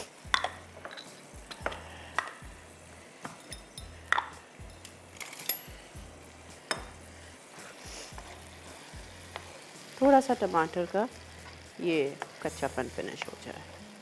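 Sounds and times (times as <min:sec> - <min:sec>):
utensils clinking against bowls: 0:00.3 - 0:02.4, 0:03.2 - 0:05.8.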